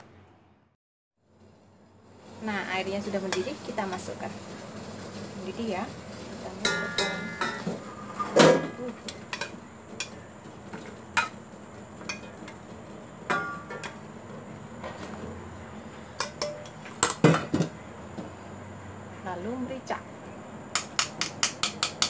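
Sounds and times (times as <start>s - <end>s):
metal bowl clinking against pot: 6.6s - 7.8s, 16.2s - 17.5s.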